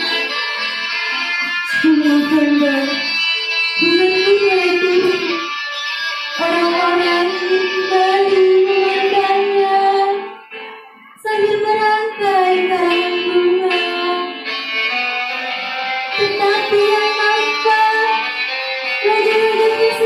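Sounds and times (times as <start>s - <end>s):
girl singing into microphone: 0.0s - 5.6s, 6.3s - 14.6s, 16.2s - 20.0s
instrumental music: 0.0s - 20.0s.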